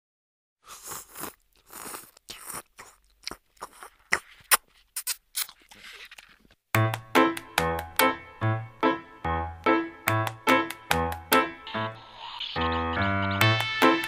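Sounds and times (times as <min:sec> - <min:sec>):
slurping through a straw: 0:00.6 - 0:03.0
piano music: 0:06.8 - 0:14.0.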